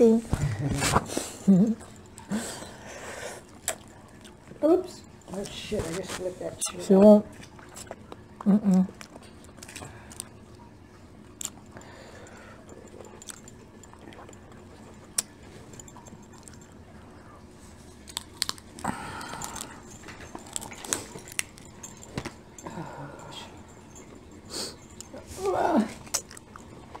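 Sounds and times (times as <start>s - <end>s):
shrimp shells cracking while peeled: 9.0s - 10.3s, 18.0s - 22.3s.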